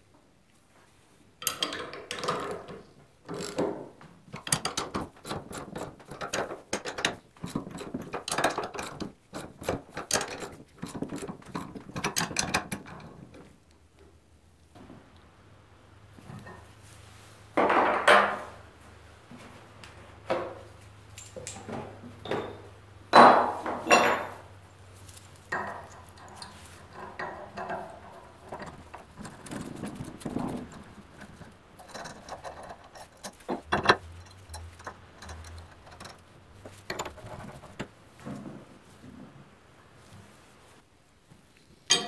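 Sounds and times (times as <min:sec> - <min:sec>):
metal parts clicking and rattling: 0:04.3 - 0:13.5, 0:23.9 - 0:37.9.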